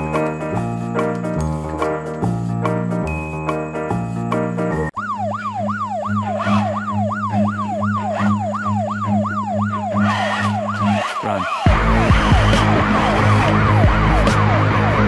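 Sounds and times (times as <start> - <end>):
chiming music: 0.0 - 5.0
police siren yelping: 4.9 - 15.0.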